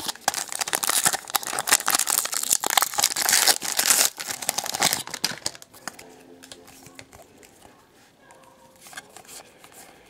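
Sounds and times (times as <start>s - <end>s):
wrapper crinkling and tearing: 0.0s - 7.0s.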